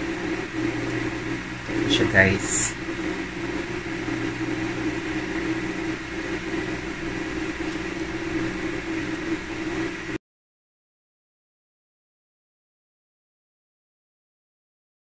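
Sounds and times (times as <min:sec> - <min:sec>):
mechanical hum with high tone: 0:00.0 - 0:10.2.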